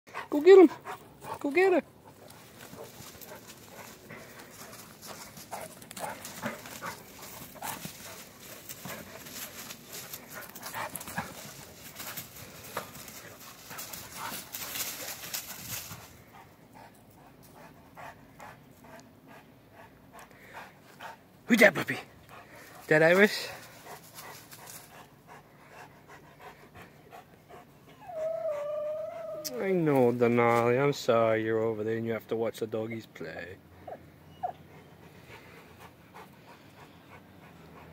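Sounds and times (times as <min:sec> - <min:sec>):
dogs panting: 0:00.1 - 0:29.4, 0:33.6 - 0:37.9
dogs scuffling: 0:02.0 - 0:16.2.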